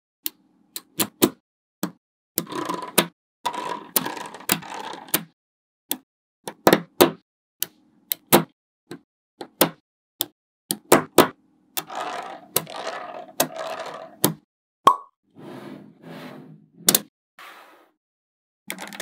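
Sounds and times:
magnet balls rattling: 11.8 - 14.2
magnet balls clicking: 11.8 - 14.3.

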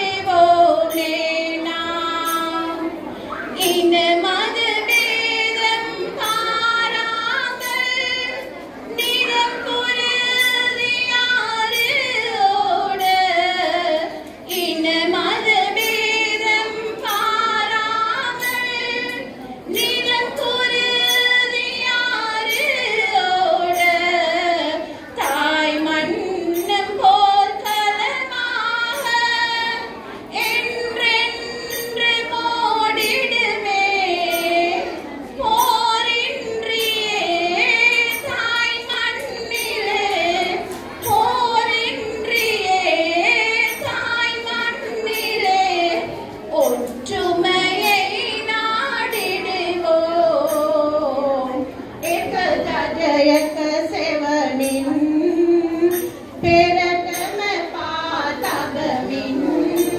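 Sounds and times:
woman singing: 0.0 - 3.0, 3.6 - 59.9.

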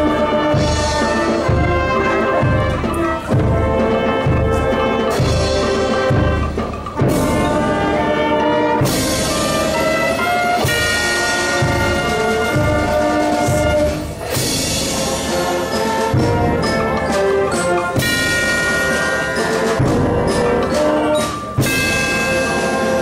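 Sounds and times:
brass sustained chords: 0.0 - 23.0
tubular bells ringing: 8.8 - 23.0.

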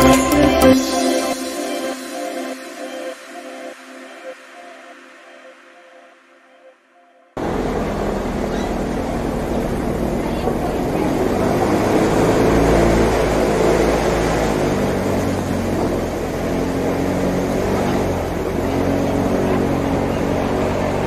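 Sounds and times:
airboat engine and propeller: 7.4 - 21.0.

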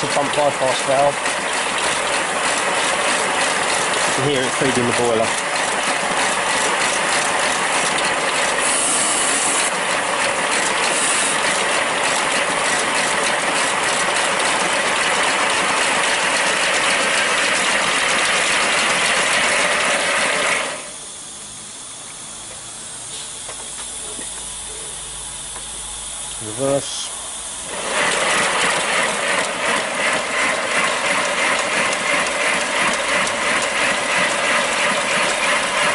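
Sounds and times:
mechanical clatter of wheels: 0.0 - 20.9, 27.5 - 35.9
steam hiss: 8.5 - 9.8, 10.7 - 11.9.

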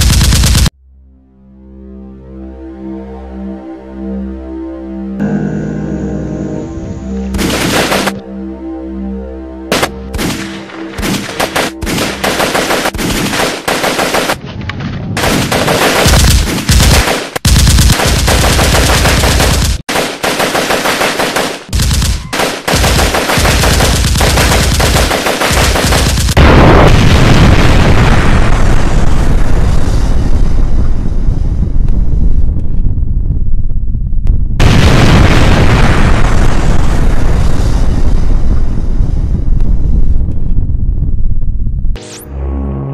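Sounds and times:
automatic rifle fire: 9.7 - 14.4, 15.2 - 26.4
explosion rumble: 26.2 - 42.0.

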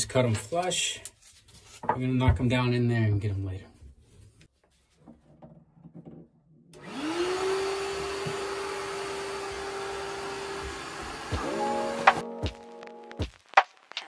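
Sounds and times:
shop vacuum running: 6.8 - 12.2.

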